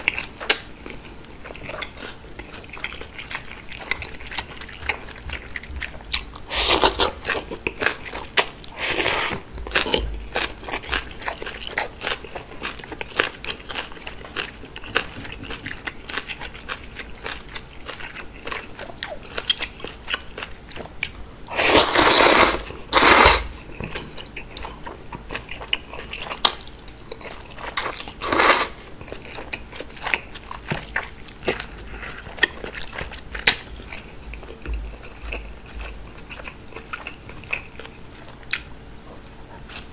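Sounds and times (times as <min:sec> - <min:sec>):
chewing and crunching: 0:00.0 - 0:39.9
noodle slurping: 0:06.5 - 0:07.2, 0:21.5 - 0:23.5, 0:27.8 - 0:28.8.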